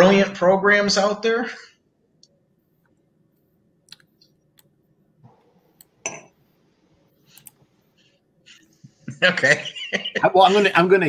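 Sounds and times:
faint clicks: 7.3s - 7.6s.

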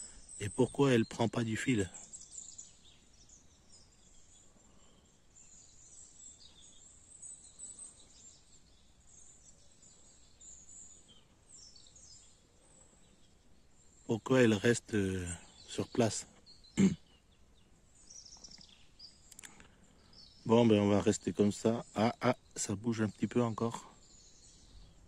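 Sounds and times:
faint bird chirps: 0.0s - 25.0s.

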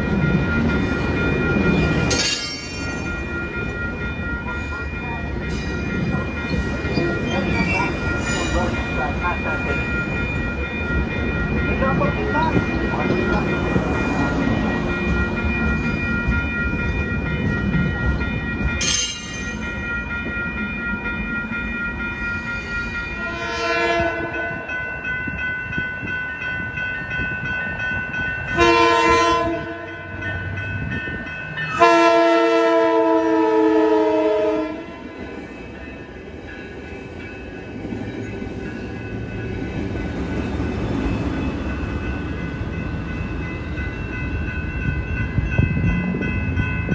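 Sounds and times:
commuter train rumbling past: 0.0s - 46.9s
train horn chord: 23.2s - 24.7s, 28.5s - 30.0s, 31.7s - 35.0s.

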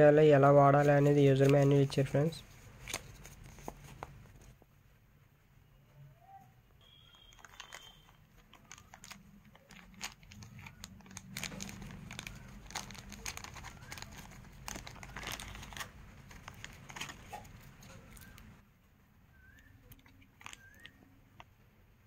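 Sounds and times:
plastic bag crinkling: 6.8s - 18.6s, 19.4s - 21.1s.

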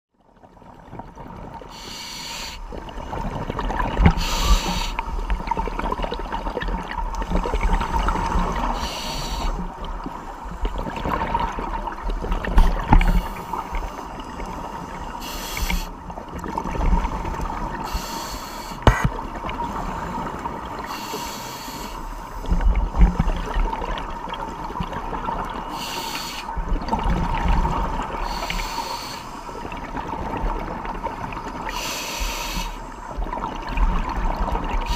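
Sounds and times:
low rumble of water: 0.1s - 34.9s
scuba breathing through regulator: 1.7s - 2.6s, 4.1s - 5.1s, 8.5s - 9.6s, 14.6s - 15.9s, 17.8s - 19.1s, 20.8s - 22.4s, 25.7s - 26.6s, 28.2s - 29.6s, 31.7s - 33.0s
exhaled bubbles rushing: 2.6s - 8.8s, 9.5s - 14.6s, 26.6s - 28.4s.

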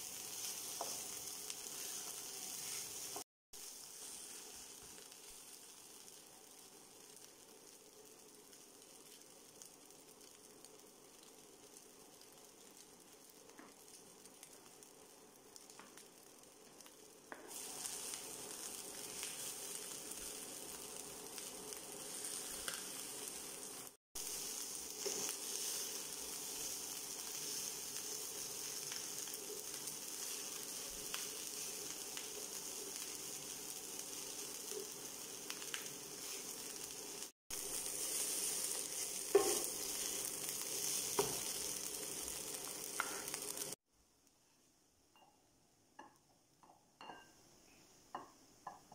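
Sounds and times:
rice sizzling in a frying pan: 0.0s - 43.9s
wooden spatula scraping a pan: 0.3s - 3.2s, 24.9s - 27.7s, 37.9s - 41.9s.

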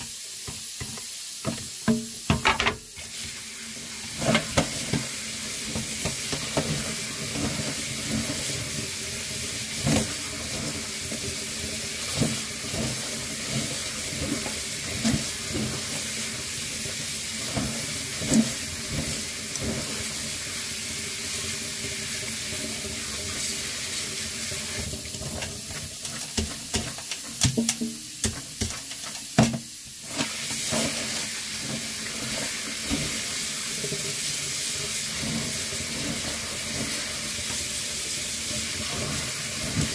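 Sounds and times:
tap water splashing into sink: 0.5s - 3.4s, 4.2s - 8.3s, 24.7s - 31.0s.

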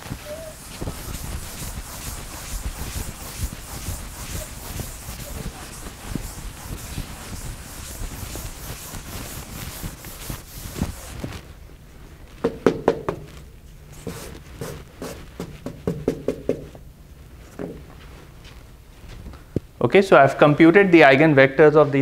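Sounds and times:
chalk rubbing on blackboard: 0.0s - 11.4s, 13.9s - 16.7s
chalk tapping on board: 0.5s - 11.1s, 12.4s - 13.4s, 14.0s - 16.8s.

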